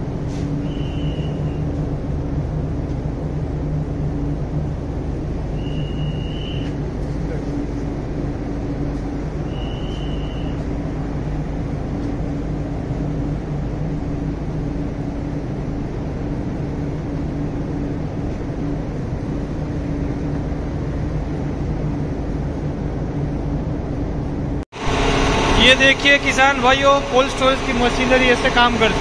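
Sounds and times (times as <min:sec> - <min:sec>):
cooling equipment humming: 0:00.0 - 0:29.0
even rushing noise: 0:24.8 - 0:29.0.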